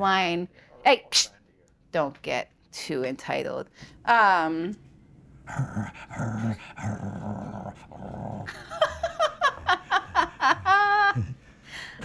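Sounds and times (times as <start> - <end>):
dog growling: 5.4 - 11.4.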